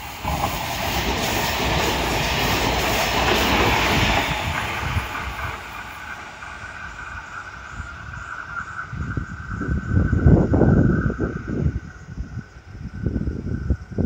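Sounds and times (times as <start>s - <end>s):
wheels clattering over rail joints: 0.0s - 10.2s
electric train passing: 0.0s - 14.0s.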